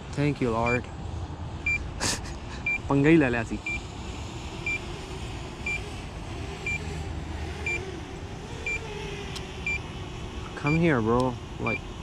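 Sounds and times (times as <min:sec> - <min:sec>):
low background hum: 0:00.0 - 0:12.0.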